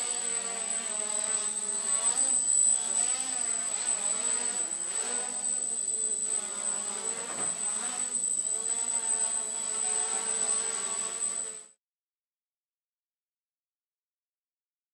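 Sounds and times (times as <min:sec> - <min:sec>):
quadcopter motors buzzing: 0:00.0 - 0:11.8.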